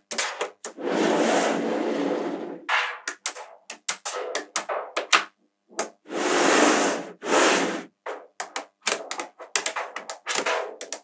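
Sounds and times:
magnetic balls clicking together: 3.0 - 6.0, 8.0 - 11.0.

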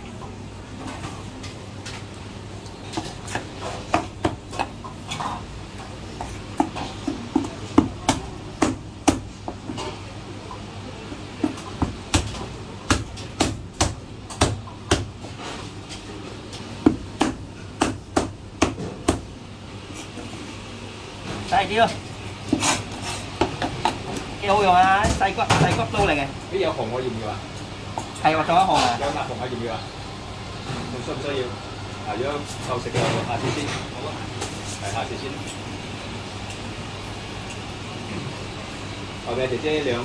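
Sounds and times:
cleaver chopping through bone: 16.9 - 19.2.

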